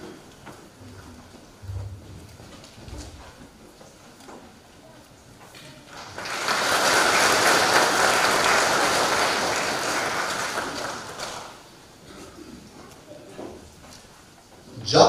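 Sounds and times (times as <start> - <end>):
congregation applauding: 5.9 - 11.7.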